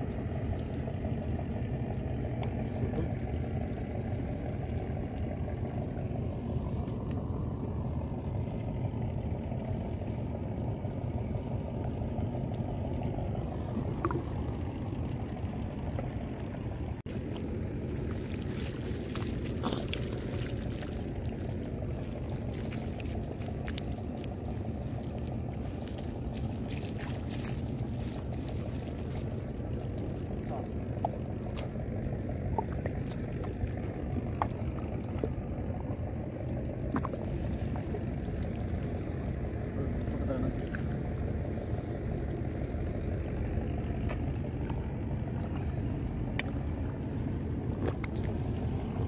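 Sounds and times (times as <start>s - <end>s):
steady low rumble: 0.0s - 49.0s
water splashing off a net: 17.1s - 31.6s.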